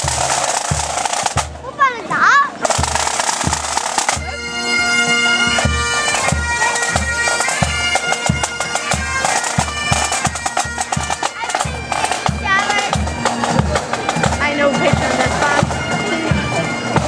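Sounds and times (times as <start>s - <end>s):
snare drums rattling: 0.0s - 1.7s, 2.6s - 4.4s, 5.6s - 15.8s
bagpipes playing a tune: 0.0s - 17.0s
steady bass drum beat: 2.6s - 4.6s, 5.5s - 17.0s.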